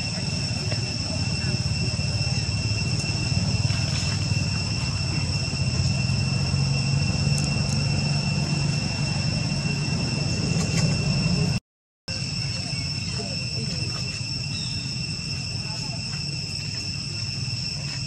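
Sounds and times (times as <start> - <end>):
low rumble: 0.0 - 11.6
high-pitched insect drone: 0.0 - 18.0.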